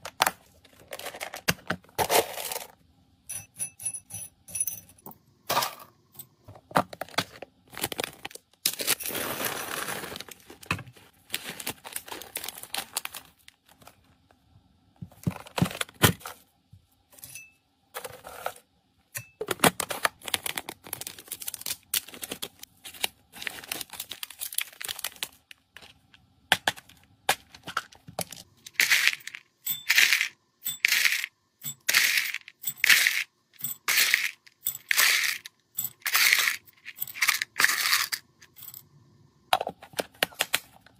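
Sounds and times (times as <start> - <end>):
plastic packaging crinkling: 7.2 - 14.0, 19.7 - 26.0.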